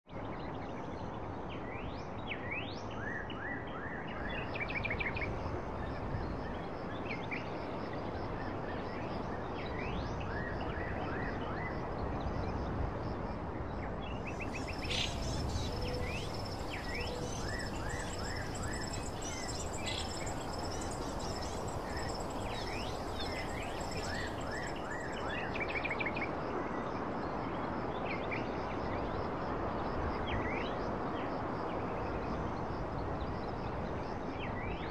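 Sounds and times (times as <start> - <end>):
small birds chirping: 14.3 - 25.5
steady rushing noise: 14.4 - 25.2
thin high tone: 14.7 - 25.2.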